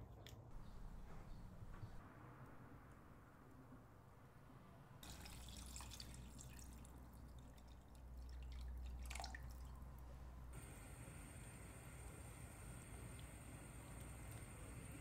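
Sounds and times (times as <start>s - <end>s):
water pouring into clay pot: 5.0s - 9.8s.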